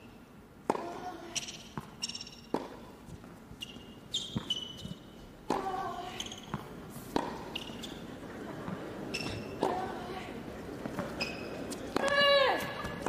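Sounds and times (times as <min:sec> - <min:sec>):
racket hitting ball: 0:00.6 - 0:04.6, 0:05.5 - 0:07.8, 0:08.7 - 0:09.9, 0:11.8 - 0:13.0
sneaker squeaks on court: 0:01.3 - 0:02.6, 0:03.6 - 0:05.2, 0:06.1 - 0:08.1, 0:09.1 - 0:09.6, 0:11.0 - 0:11.8.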